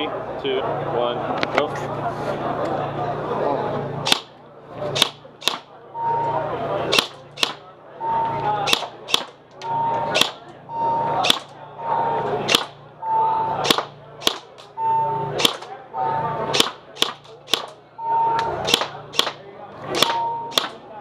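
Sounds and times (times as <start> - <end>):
airsoft rifle shots: 4.0 - 4.4, 5.0 - 5.8, 6.9 - 7.7, 8.7 - 9.4, 10.1 - 10.5, 11.2 - 11.6, 12.5 - 12.8, 13.6 - 14.7, 15.4 - 15.8, 16.5 - 17.8, 18.6 - 20.9.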